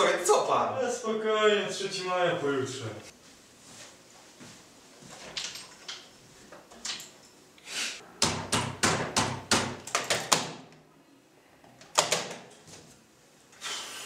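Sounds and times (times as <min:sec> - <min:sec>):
sharp knocks: 0:08.2 - 0:10.6.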